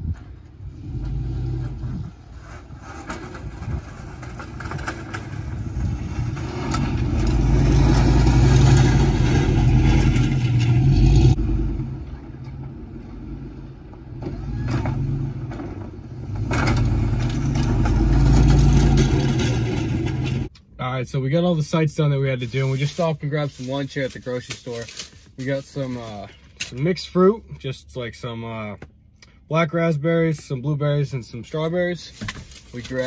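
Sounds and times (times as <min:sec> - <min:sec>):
snowplow plowing snow: 0:00.5 - 0:20.5
truck engine working hard: 0:00.7 - 0:20.5.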